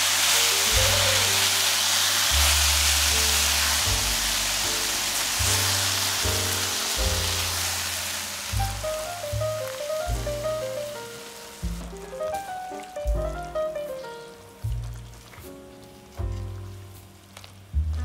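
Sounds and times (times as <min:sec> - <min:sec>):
vegetables sizzling in oil: 0:00.0 - 0:18.0
background music with bass line: 0:00.6 - 0:01.6, 0:02.2 - 0:18.0.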